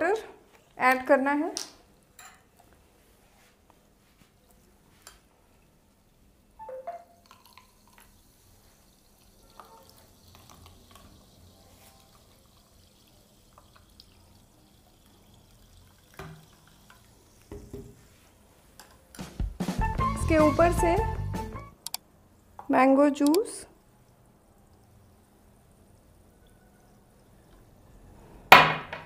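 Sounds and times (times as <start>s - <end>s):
liquid trickling into glass: 6.0s - 18.0s, 23.8s - 28.0s.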